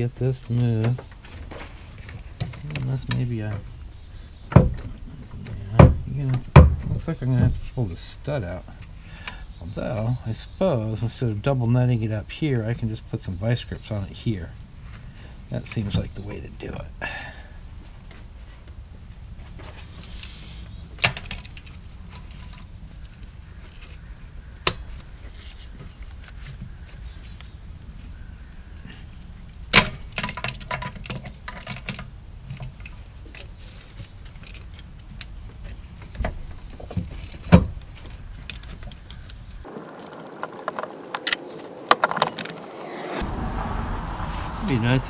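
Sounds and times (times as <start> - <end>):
metal tools clinking and knocking: 29.8 - 34.9.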